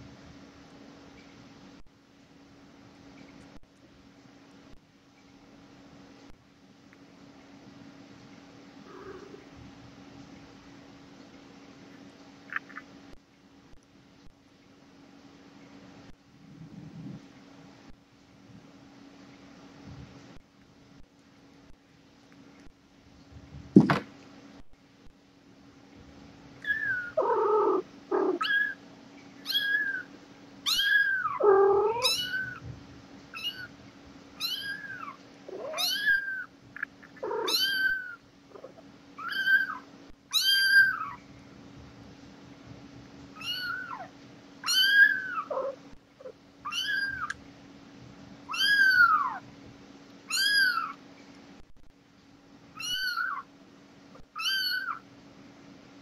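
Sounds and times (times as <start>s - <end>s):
kitten mewing: 8.9s - 9.5s, 30.7s - 32.6s, 37.2s - 41.2s, 43.4s - 47.4s, 48.5s - 49.4s, 50.3s - 51.0s, 52.8s - 53.5s, 54.3s - 55.0s.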